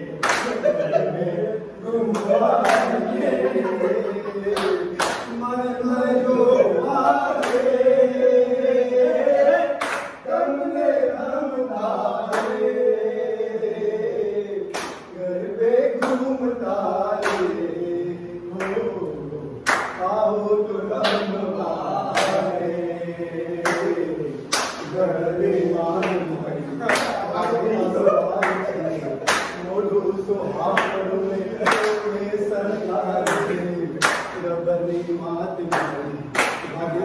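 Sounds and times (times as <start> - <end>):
men singing unaccompanied: 0.0 - 37.0
hand claps: 0.2 - 1.0, 2.1 - 3.0, 4.5 - 5.4, 7.4 - 7.7, 9.8 - 10.2, 12.3 - 12.6, 14.7 - 15.2, 16.0 - 16.3, 17.2 - 17.6, 18.5 - 20.1, 21.0 - 21.4, 22.0 - 22.5, 23.6 - 25.0, 25.9 - 27.7, 28.3 - 29.8, 30.6 - 32.2, 33.1 - 34.5, 35.6 - 36.8.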